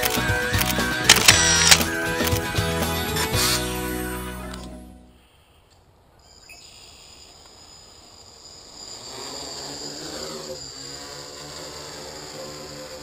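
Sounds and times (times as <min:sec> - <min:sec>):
drone motors whining: 0:00.0 - 0:04.7, 0:07.4 - 0:13.0.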